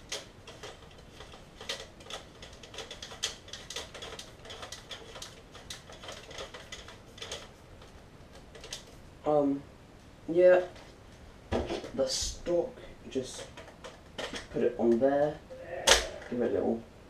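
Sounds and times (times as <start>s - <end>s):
plastic parts clicking and rattling: 0.0s - 9.0s, 13.1s - 15.2s.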